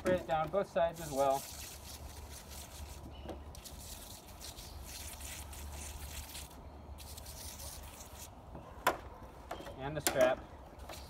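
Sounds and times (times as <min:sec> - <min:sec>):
pump sprayer hissing: 0:00.8 - 0:03.0.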